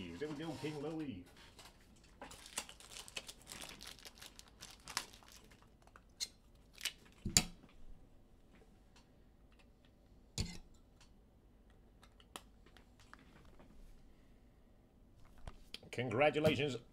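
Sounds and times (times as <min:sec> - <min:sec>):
cards and packaging rustling: 0:00.0 - 0:06.1.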